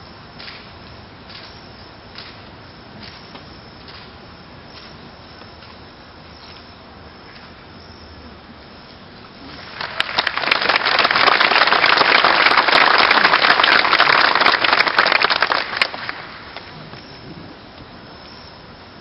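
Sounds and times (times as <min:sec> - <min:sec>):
audience applauding: 0:09.5 - 0:16.7.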